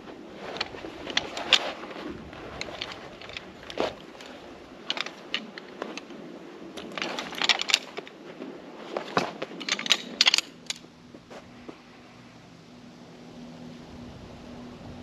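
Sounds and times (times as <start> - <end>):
camping gear crunching and clicking: 0.0 - 11.8.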